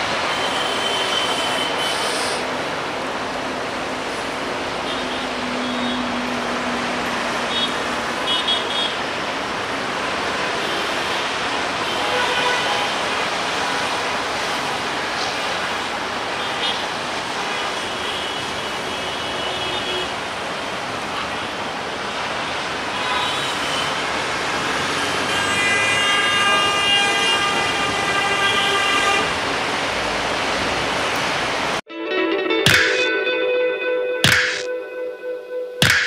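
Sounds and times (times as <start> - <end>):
road traffic rush: 0.0 - 31.9, 34.2 - 36.0
vehicle horn: 0.3 - 2.1, 7.5 - 9.0, 10.6 - 13.0, 23.0 - 24.0, 25.1 - 29.3
multi-tone horn: 10.6 - 13.0, 25.1 - 29.3.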